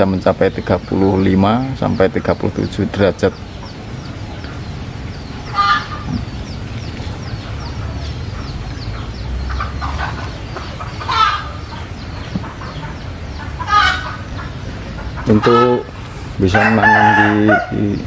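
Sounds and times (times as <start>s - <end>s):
chickens clucking: 0.0s - 18.0s.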